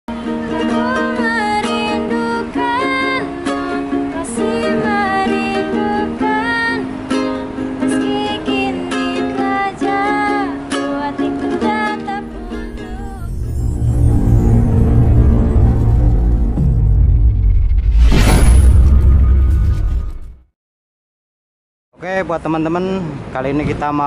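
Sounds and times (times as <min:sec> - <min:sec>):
strummed ukulele: 0:00.1 - 0:13.6
woman singing: 0:00.1 - 0:13.6.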